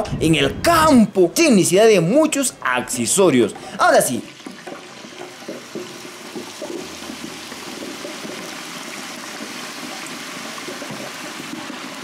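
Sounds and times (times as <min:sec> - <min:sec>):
fries sizzling in deep fryer oil: 0:03.6 - 0:12.0.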